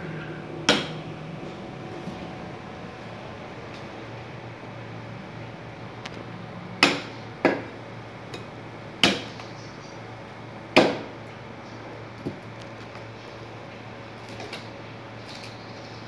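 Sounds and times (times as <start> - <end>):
cleaver chopping bone on wood: 0.7 - 1.0, 6.8 - 7.7, 8.4 - 9.5, 10.8 - 11.2.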